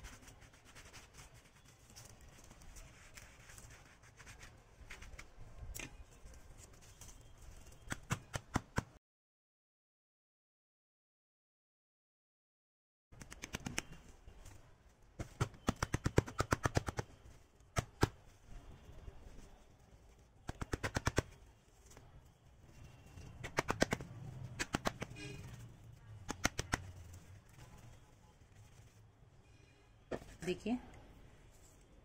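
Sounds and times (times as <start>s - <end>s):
hand slapping plastic pot: 23.4s - 25.2s, 26.2s - 27.1s.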